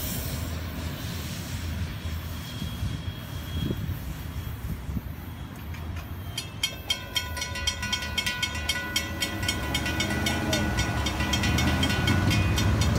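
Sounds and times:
crossing warning bell ringing: 5.2s - 12.9s.

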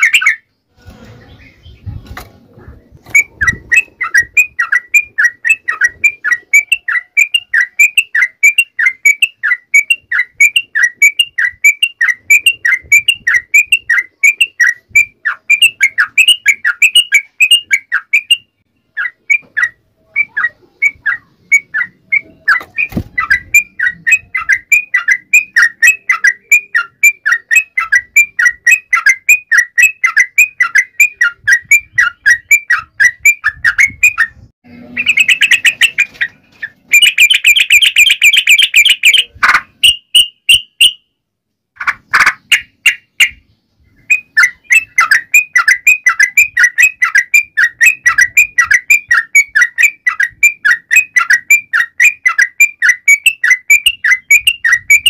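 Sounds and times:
harsh bird chattering: 0.0s - 0.5s, 1.3s - 41.0s, 41.8s - 55.0s
bird song bubbly notes: 3.1s - 34.3s.

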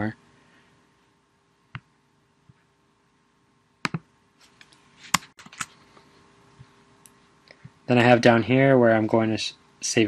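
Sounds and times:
faint room hum: 0.0s - 10.0s
computer mouse clicks: 3.8s - 4.0s.

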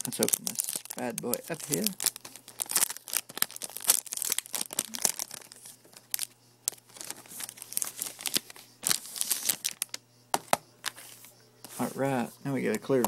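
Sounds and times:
plastic wrap crackling and tearing: 0.0s - 10.0s.

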